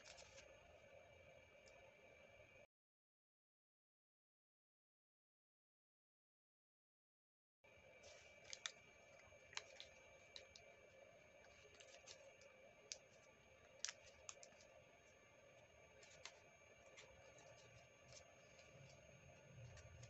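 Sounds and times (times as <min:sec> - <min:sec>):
paper being folded and creased: 0:00.0 - 0:00.5, 0:08.0 - 0:08.8, 0:09.5 - 0:10.6, 0:11.4 - 0:14.7, 0:16.0 - 0:20.0
faint steady background tone: 0:07.7 - 0:20.0.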